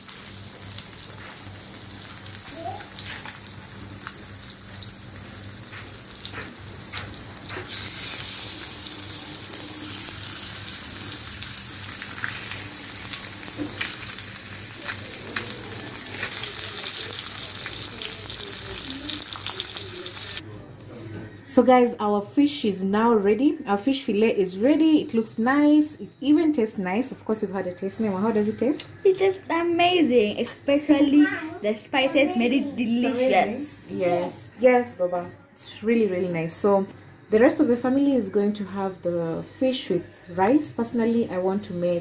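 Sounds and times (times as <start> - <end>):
fish fillets sizzling in hot oil: 0.0 - 20.4
oil crackling: 0.0 - 20.4.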